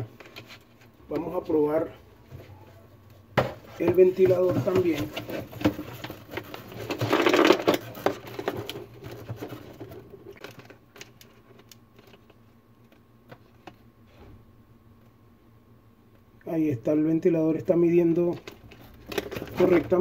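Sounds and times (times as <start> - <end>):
rustling scrape: 3.6 - 10.4.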